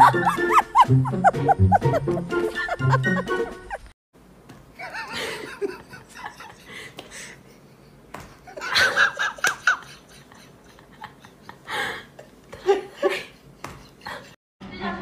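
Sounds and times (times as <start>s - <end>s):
person laughing: 0.0s - 3.9s, 4.8s - 14.4s
hand slapping a cat: 8.1s - 8.4s.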